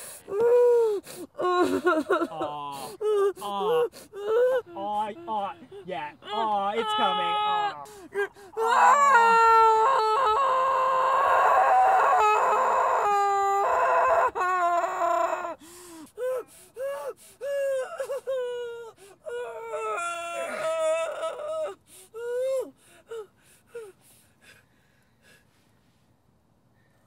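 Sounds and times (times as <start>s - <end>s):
woman crying and whimpering: 0.0s - 15.5s, 16.1s - 23.9s
woman screaming: 6.2s - 15.6s, 19.3s - 22.7s.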